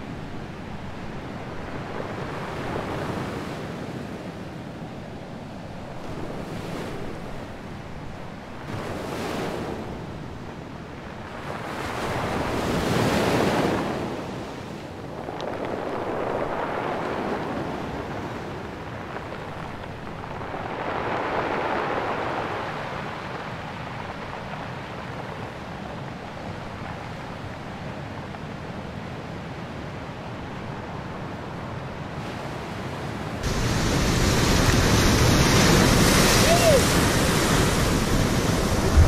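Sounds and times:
surf washing over rocks: 0:00.0 - 0:04.7, 0:05.6 - 0:39.0
loud surf breaking close by: 0:01.3 - 0:04.4, 0:08.6 - 0:10.2, 0:11.3 - 0:15.0, 0:15.6 - 0:24.1, 0:32.2 - 0:39.0.

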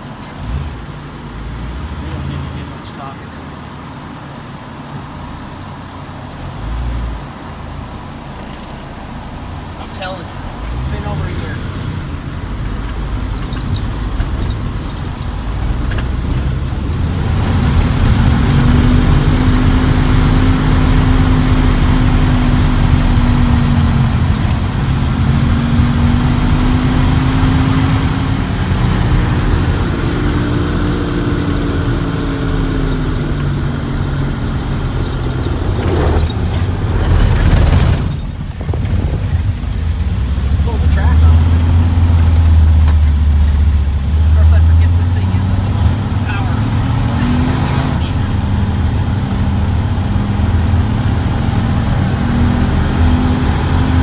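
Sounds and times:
vehicle engine from inside cab: 0:00.0 - 0:54.0
loud rushing noise: 0:33.7 - 0:40.1.

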